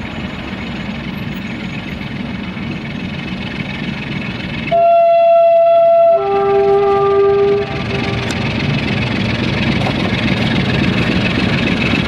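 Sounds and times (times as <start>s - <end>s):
diesel locomotive engine running: 0.0s - 12.0s
loud steady tone: 4.7s - 8.8s.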